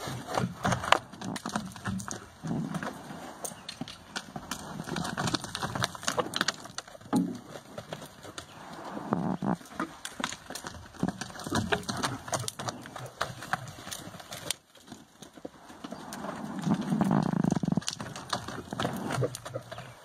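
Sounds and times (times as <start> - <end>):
hooves thudding on dirt: 0.0 - 20.0.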